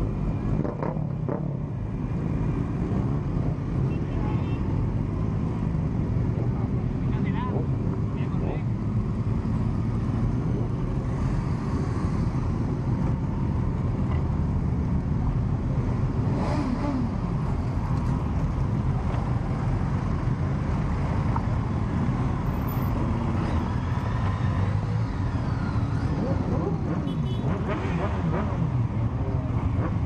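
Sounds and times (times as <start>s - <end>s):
motorcycles riding past: 15.8s - 30.0s.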